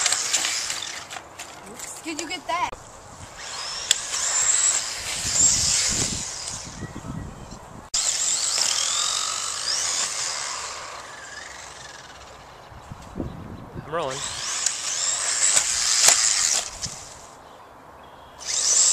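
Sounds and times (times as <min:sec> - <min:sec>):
electric motor whining: 0:00.0 - 0:01.2, 0:03.2 - 0:12.8, 0:14.0 - 0:17.3, 0:18.4 - 0:18.9.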